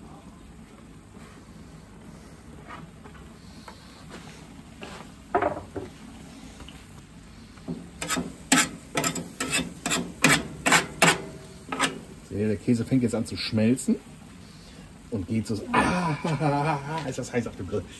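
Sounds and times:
metal spatula on steel griddle: 7.7s - 12.3s.

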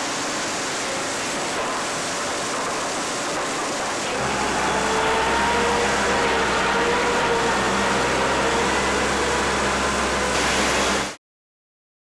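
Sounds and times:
diesel engine running under load: 4.1s - 11.2s.

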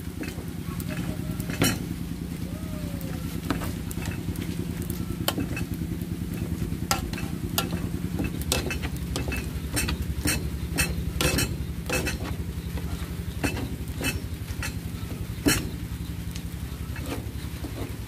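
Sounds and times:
steady low drone: 0.0s - 18.0s
masher knocking in metal pot: 6.3s - 12.4s, 13.4s - 14.8s.

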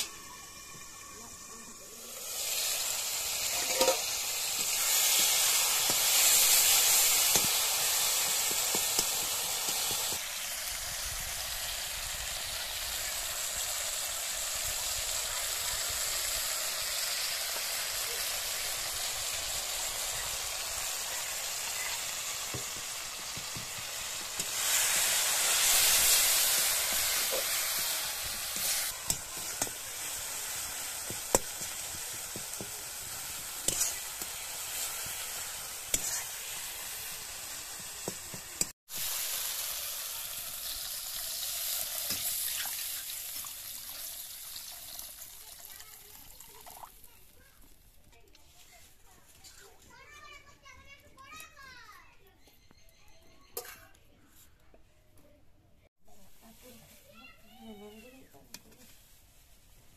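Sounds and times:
masala sizzling in a wok: 0.0s - 54.7s, 56.1s - 59.9s
metal spatula scraping a pan: 3.4s - 5.5s, 31.3s - 37.2s.

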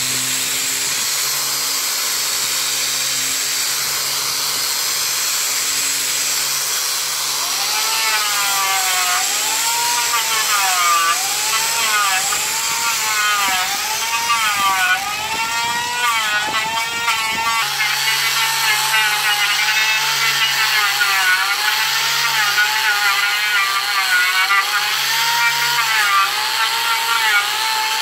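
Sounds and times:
angle grinder sanding wood: 0.0s - 28.0s.

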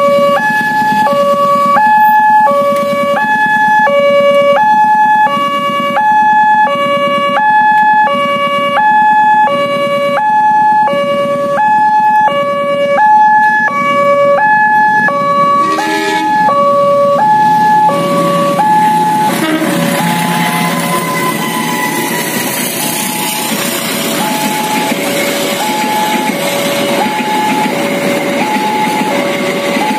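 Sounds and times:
level crossing two-tone alarm: 0.0s - 23.6s, 24.2s - 29.9s
train running noise: 0.0s - 29.9s.

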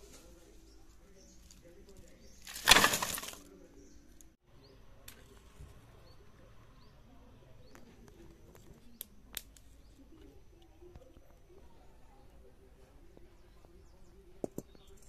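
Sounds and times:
quiet rural background: 0.0s - 15.0s
dry twigs snapping in fire: 8.6s - 9.7s.

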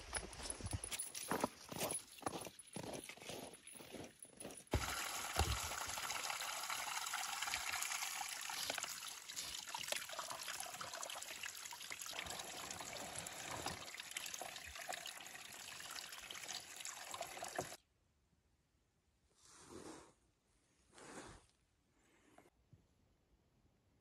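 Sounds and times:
water splashing onto rocks: 4.7s - 11.5s.

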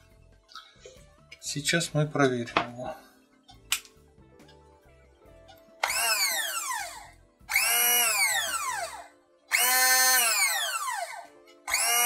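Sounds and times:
blender motor whine: 5.8s - 12.0s.

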